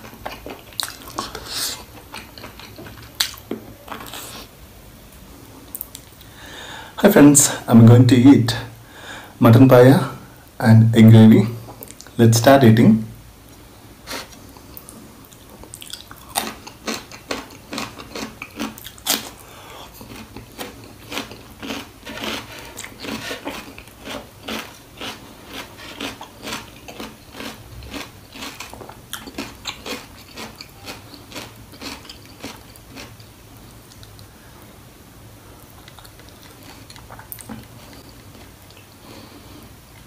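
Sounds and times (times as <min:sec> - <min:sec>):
chewing and mouth smacks: 0:00.0 - 0:04.3, 0:14.3 - 0:19.4, 0:20.0 - 0:33.2, 0:33.9 - 0:34.3, 0:35.8 - 0:39.0.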